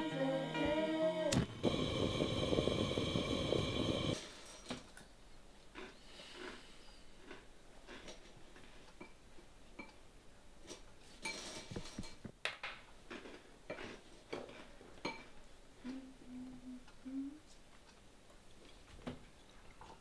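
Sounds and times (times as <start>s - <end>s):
cutlery clinking against dishes: 10.7s - 12.2s, 13.7s - 15.4s.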